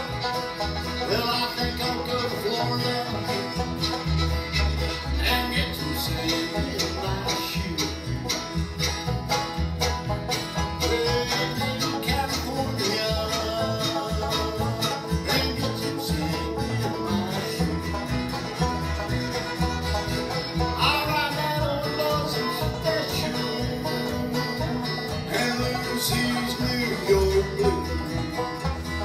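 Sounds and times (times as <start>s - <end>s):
acoustic guitar strumming: 0.0s - 29.0s
banjo picking: 0.0s - 29.0s
fiddle: 0.0s - 29.0s
upright bass: 0.0s - 29.0s.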